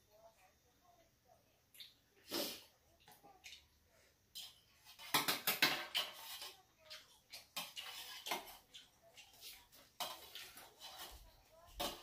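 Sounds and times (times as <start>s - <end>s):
metal utensils clinking on steel bowl: 4.3s - 12.0s.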